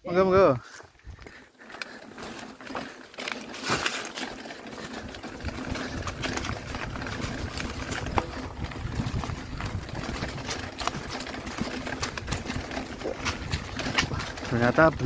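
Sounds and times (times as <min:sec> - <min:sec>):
bike rattling: 0:00.2 - 0:15.0
bike tyres crunching over stones: 0:00.4 - 0:15.0
wind rumble on microphone: 0:05.4 - 0:15.0.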